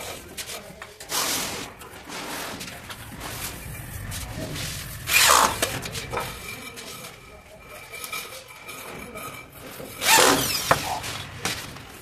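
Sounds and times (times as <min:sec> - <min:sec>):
wood scraping on wood: 0:00.0 - 0:12.0.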